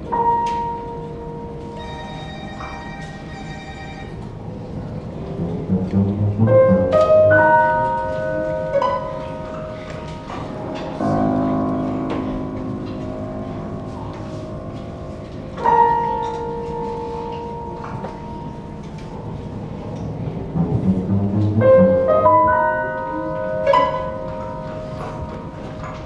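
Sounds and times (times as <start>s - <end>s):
chamber music violin cello clarinet piano: 0.2s - 4.4s, 5.4s - 11.1s, 20.5s - 26.0s.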